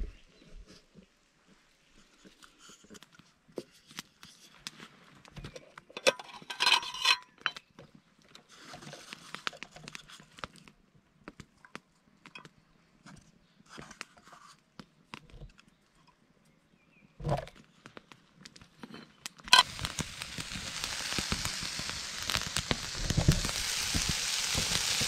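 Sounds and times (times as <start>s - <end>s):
campfire crackling: 19.4s - 25.0s
soft hiss: 19.5s - 25.0s.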